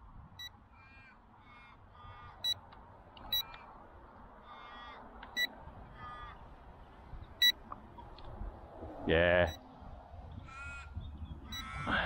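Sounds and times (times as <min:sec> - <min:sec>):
ravens calling: 0:00.7 - 0:02.6, 0:04.4 - 0:05.1, 0:05.9 - 0:06.5, 0:10.4 - 0:12.0.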